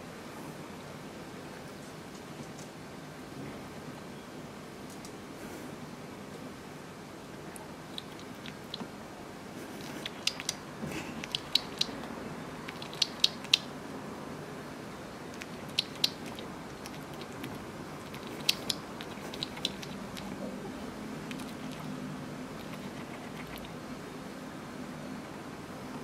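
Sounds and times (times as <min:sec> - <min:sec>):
hedgehog crunching food: 0:07.8 - 0:08.9, 0:09.6 - 0:13.7, 0:15.3 - 0:23.8.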